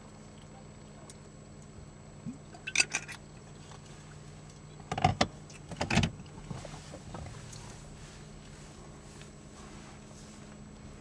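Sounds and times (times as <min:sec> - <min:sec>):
car engine humming: 0:02.0 - 0:11.0.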